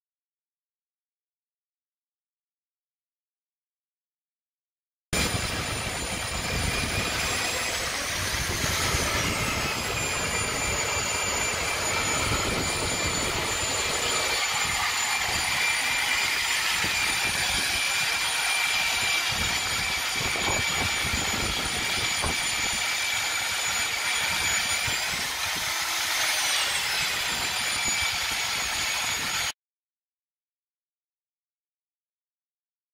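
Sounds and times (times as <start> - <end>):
drill bit grinding through stone: 5.2 - 29.5
core drill motor whining: 5.2 - 29.6.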